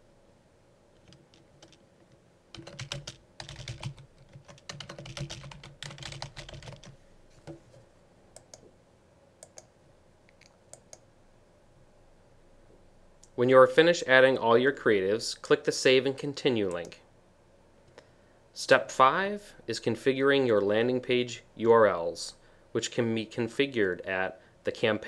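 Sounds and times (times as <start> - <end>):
computer keyboard typing: 1.0 - 1.8, 2.5 - 7.6, 9.4 - 9.7.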